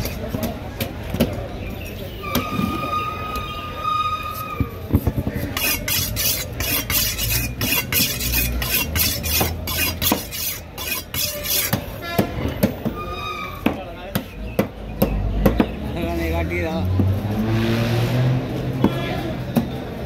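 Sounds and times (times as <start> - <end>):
knife rasping through fish: 5.5 - 11.8.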